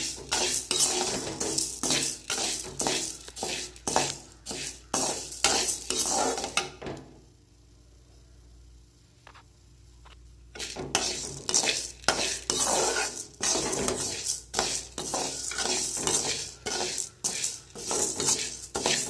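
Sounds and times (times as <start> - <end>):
steel spatula scraping metal pan: 0.0 - 6.7, 10.6 - 19.0
lentils rattling against metal: 10.6 - 19.0.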